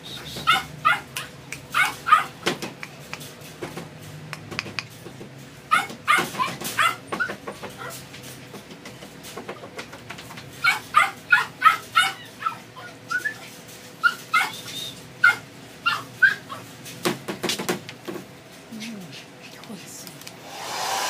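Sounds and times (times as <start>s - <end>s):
puppy yipping: 0.3s - 2.4s, 5.7s - 8.0s, 10.6s - 16.6s.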